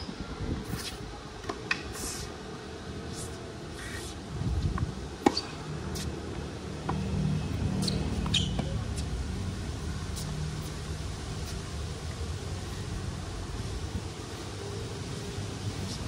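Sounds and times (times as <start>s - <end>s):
racket hitting ball: 5.2s - 5.6s
tennis ball bouncing: 5.2s - 6.1s, 7.8s - 9.1s
shoe squeaks: 7.7s - 9.1s.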